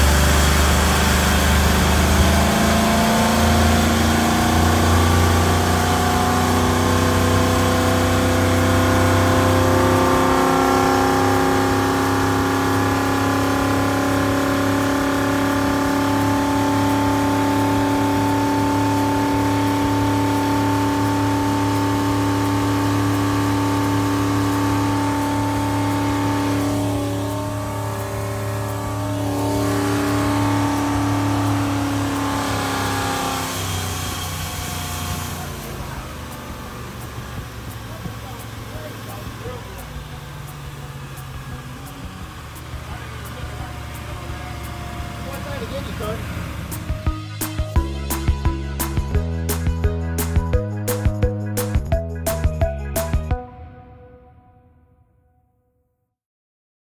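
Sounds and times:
boat engine droning: 0.0 - 50.3.

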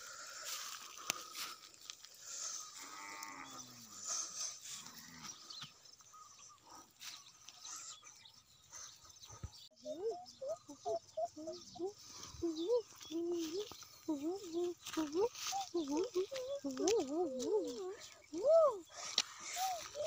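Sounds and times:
cow mooing: 2.8 - 3.9.

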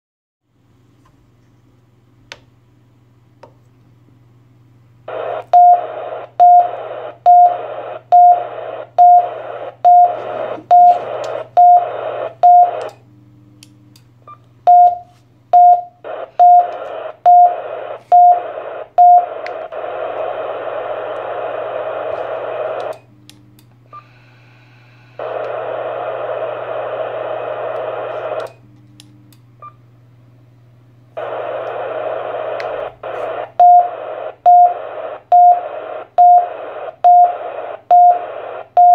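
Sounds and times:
radio receiver hiss: 5.1 - 13.0, 16.0 - 23.1, 23.8 - 28.6, 31.2 - 38.9
radio speaker beeping: 5.1 - 13.0, 14.7 - 23.1, 25.1 - 28.6, 31.2 - 38.9.

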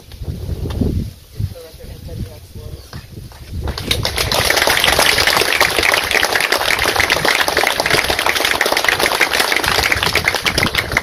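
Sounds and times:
crowd applauding: 3.7 - 11.0.

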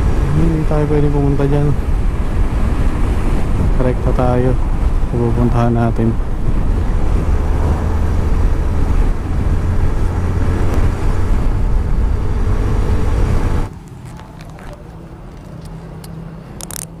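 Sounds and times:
outdoor background: 0.0 - 17.0
wind on microphone: 1.2 - 13.7.

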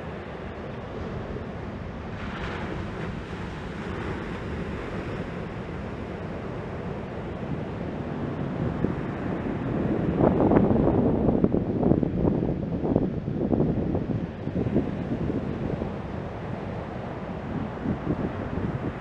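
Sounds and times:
ocean waves breaking: 0.0 - 12.9, 14.0 - 19.0
wind buffeting microphone: 0.0 - 19.0.

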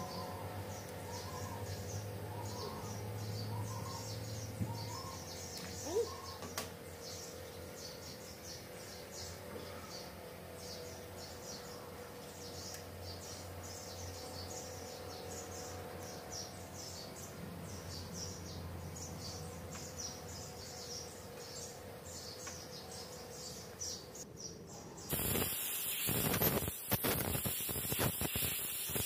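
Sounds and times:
steady low hum: 0.0 - 29.0
air blow gun hissing: 25.1 - 29.0
fast high chirping: 25.1 - 29.0.

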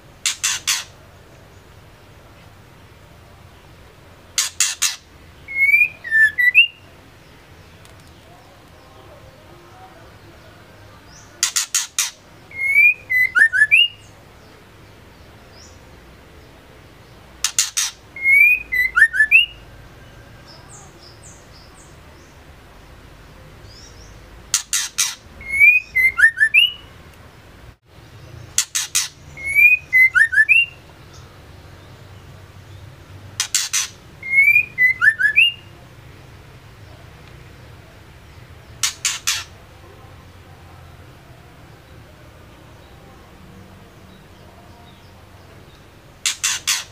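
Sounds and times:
bird sharp clicking notes: 0.2 - 0.9, 28.6 - 29.2, 33.4 - 34.0, 38.8 - 39.5, 46.2 - 46.9
bird high whistled notes: 4.6 - 6.8, 17.5 - 19.6, 24.8 - 26.9, 28.8 - 30.8, 33.5 - 35.6.

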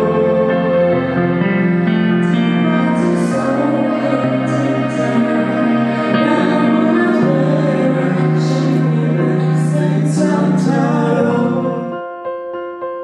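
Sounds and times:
sustained chords over bass: 0.0 - 12.0.

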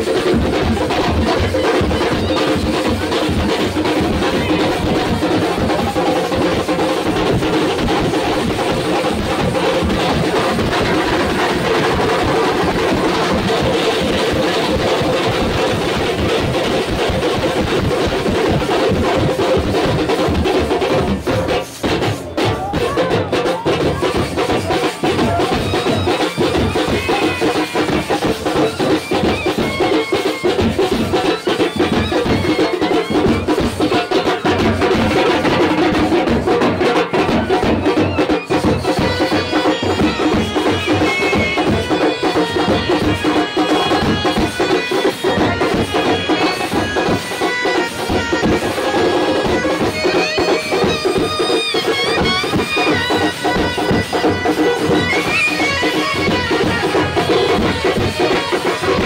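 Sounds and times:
loud drumming: 0.0 - 59.0
reedy wind instrument melody: 21.9 - 59.0.

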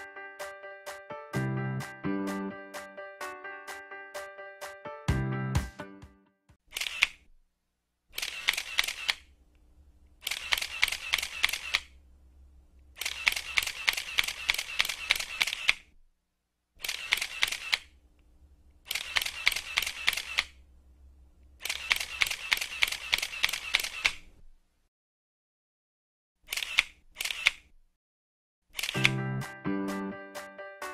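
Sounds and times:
camera shutter clicking in bursts: 6.7 - 7.2, 8.1 - 9.3, 10.2 - 12.0, 13.0 - 15.9, 16.8 - 18.0, 18.9 - 20.6, 21.6 - 24.3, 26.4 - 27.7, 28.7 - 29.2.

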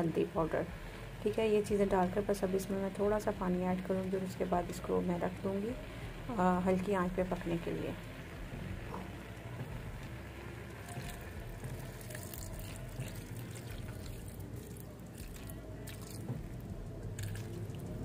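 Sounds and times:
water trickling and splashing: 9.2 - 18.0.

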